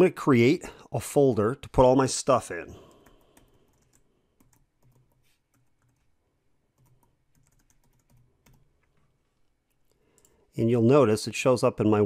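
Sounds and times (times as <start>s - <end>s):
faint computer keyboard typing: 2.9s - 10.4s.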